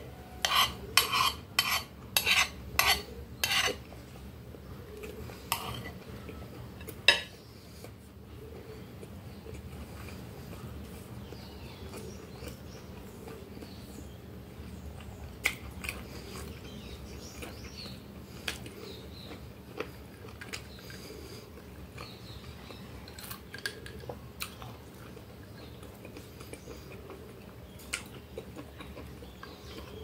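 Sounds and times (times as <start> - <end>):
wet chewing and mouth noises: 8.8 - 30.0.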